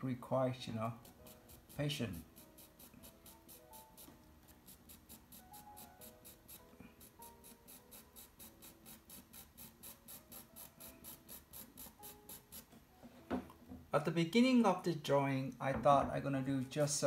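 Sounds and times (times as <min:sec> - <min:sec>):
faint background music: 0:00.0 - 0:17.0
pencil scratching on paper: 0:00.8 - 0:12.7.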